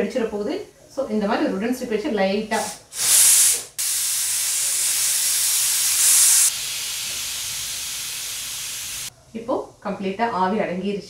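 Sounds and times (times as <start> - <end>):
pressure cooker steam hissing: 2.5 - 9.1.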